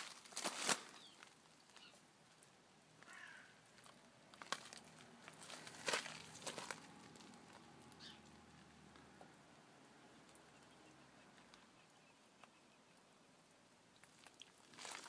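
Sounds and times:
faint bird chirps: 0:00.9 - 0:02.0, 0:07.9 - 0:08.3, 0:10.4 - 0:13.4.

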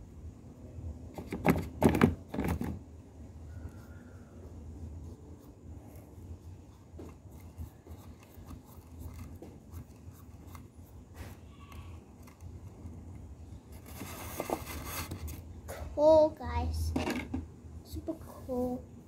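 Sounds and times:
paintbrush scratching and tapping: 0:04.5 - 0:11.3.

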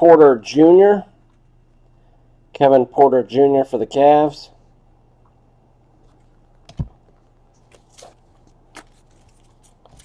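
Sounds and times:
cards clicking and rustling: 0:07.6 - 0:10.0.

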